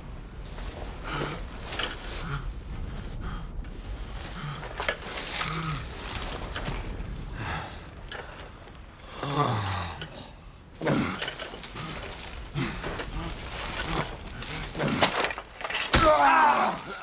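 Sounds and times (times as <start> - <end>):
pebbles clicking and shifting: 10.8 - 17.0.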